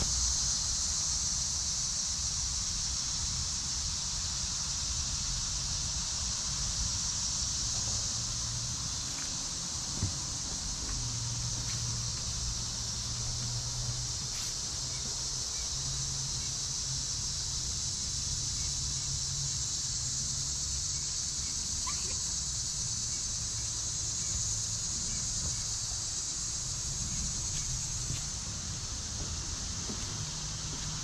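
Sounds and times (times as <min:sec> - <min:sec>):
insect chorus drone: 0:00.0 - 0:31.0
faint bird chirps: 0:21.0 - 0:22.3.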